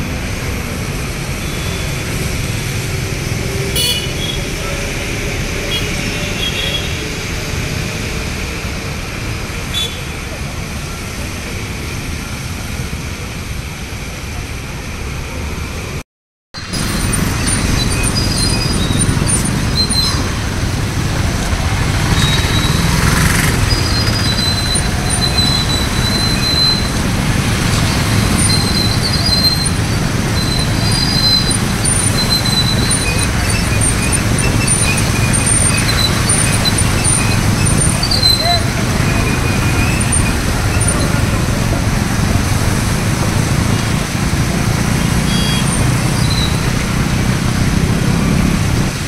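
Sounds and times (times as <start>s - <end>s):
engines rumbling: 0.0s - 16.0s, 16.6s - 49.0s
tyres hissing through water: 16.6s - 49.0s.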